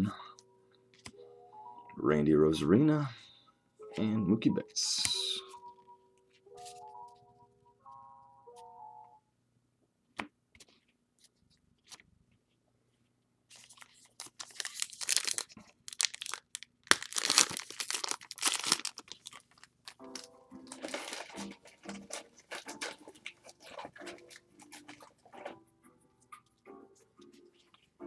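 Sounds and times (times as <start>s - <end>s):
wrapper tearing and crinkling: 13.5s - 25.2s.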